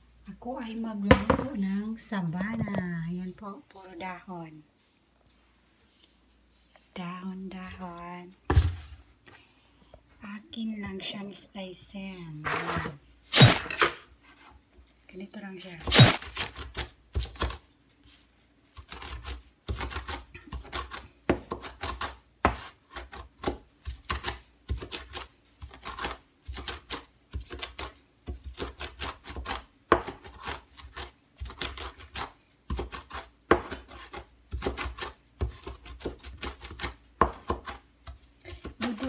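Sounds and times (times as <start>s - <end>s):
knife chopping on cutting board: 18.9s - 39.0s.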